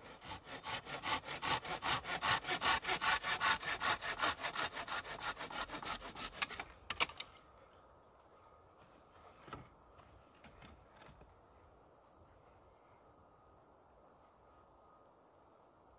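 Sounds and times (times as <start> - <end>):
hand saw cutting wood: 0.0 - 6.7.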